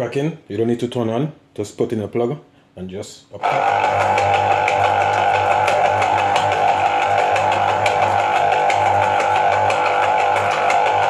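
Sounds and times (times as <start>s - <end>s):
citrus juicer motor hum: 3.4s - 11.0s.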